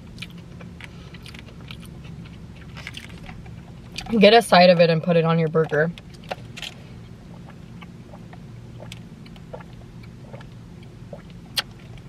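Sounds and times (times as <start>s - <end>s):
low hum inside car: 0.0s - 12.0s
mouth clicks sipping and chewing: 7.4s - 12.0s.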